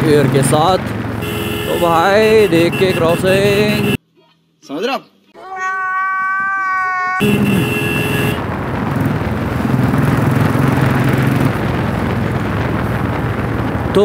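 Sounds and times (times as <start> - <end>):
motorcycle engine running: 0.0 - 4.0, 7.2 - 14.0
wind rushing over microphone: 7.2 - 14.0.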